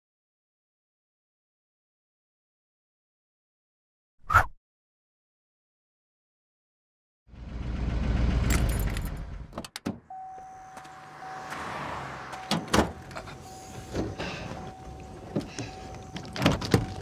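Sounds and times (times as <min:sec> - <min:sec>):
truck engine rumble: 0:07.3 - 0:17.0
knocks and clunks: 0:08.5 - 0:10.1, 0:12.3 - 0:13.3
electronic warning chime: 0:10.1 - 0:11.6, 0:12.3 - 0:17.0.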